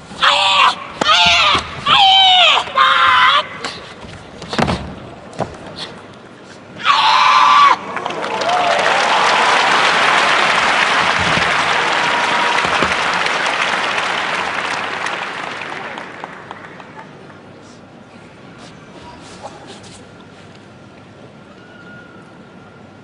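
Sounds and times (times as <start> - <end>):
loud kiai shout: 0.2 - 3.8, 6.8 - 9.6
crowd applauding: 7.7 - 17.4.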